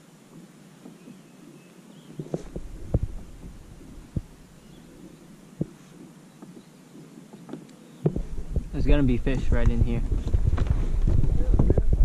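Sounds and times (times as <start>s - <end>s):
faint steady background noise: 0.0s - 12.0s
dull low thumps: 2.2s - 5.8s, 8.0s - 12.0s.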